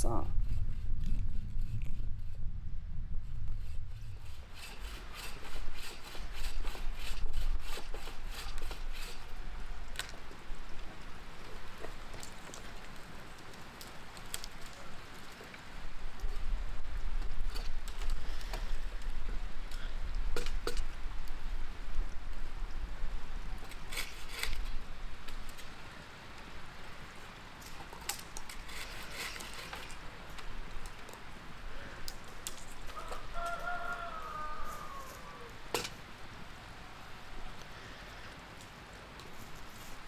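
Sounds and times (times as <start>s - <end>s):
wind rumbling on microphone: 0.0s - 13.4s, 14.0s - 25.8s
distant rooster crowing: 32.9s - 35.6s.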